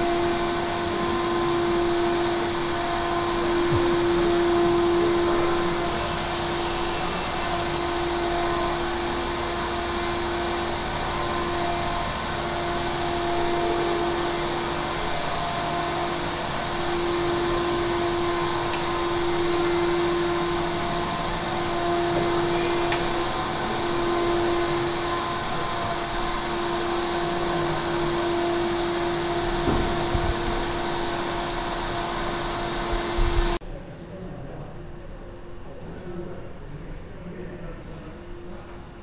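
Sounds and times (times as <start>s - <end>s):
ventilation fans humming: 0.0s - 39.0s.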